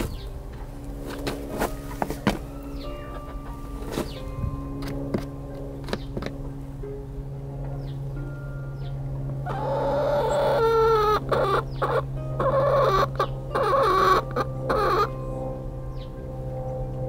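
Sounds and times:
steady low hum: 0:00.0 - 0:17.0
hen clucking: 0:01.8 - 0:04.2, 0:09.5 - 0:15.1.

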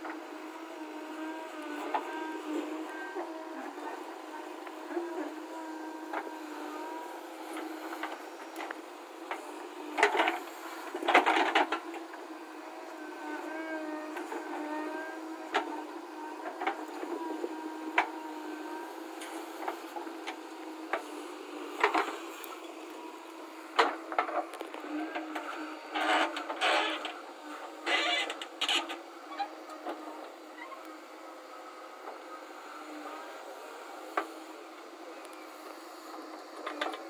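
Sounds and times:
hydraulic whine: 0:12.5 - 0:37.0.

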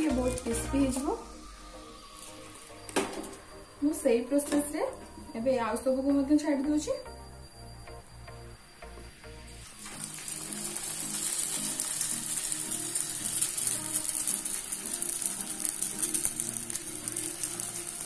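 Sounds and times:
background music: 0:00.0 - 0:18.0
dough sizzling in hot oil: 0:08.7 - 0:18.0.

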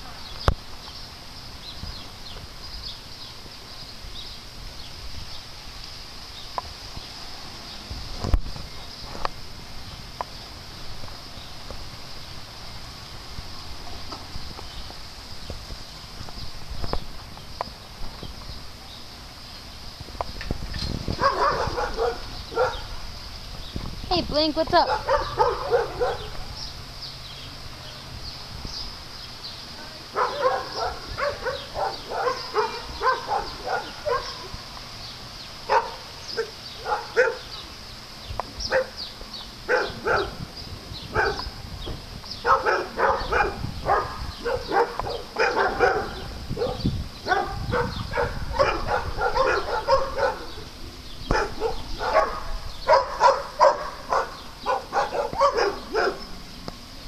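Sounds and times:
dogs barking: 0:21.1 - 0:23.0, 0:24.8 - 0:26.6, 0:30.1 - 0:34.6, 0:35.6 - 0:37.6, 0:38.6 - 0:39.0, 0:39.7 - 0:40.5, 0:41.1 - 0:41.6, 0:42.4 - 0:50.7, 0:51.3 - 0:56.4.

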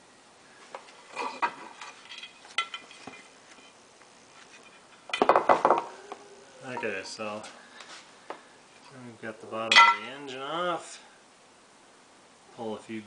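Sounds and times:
metal clinks and knocks: 0:01.4 - 0:03.7.

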